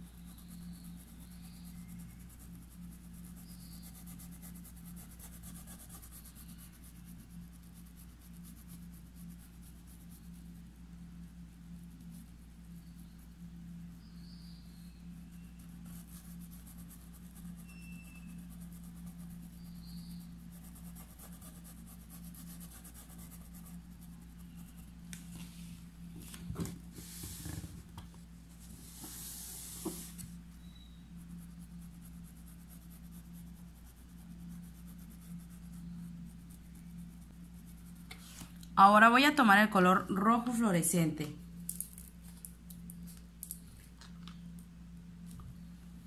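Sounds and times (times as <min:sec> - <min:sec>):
paintbrush scratching on fabric: 0:00.0 - 0:25.9, 0:28.5 - 0:38.5.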